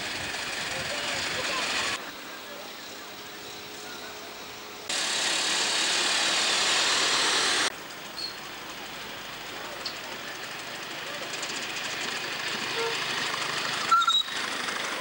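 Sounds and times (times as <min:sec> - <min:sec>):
steam hissing: 0:04.9 - 0:15.0.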